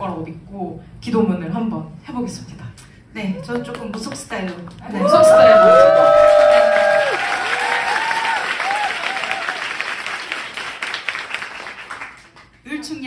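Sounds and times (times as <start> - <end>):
audience applauding: 3.5 - 12.6
audience cheering and whooping: 4.9 - 10.4.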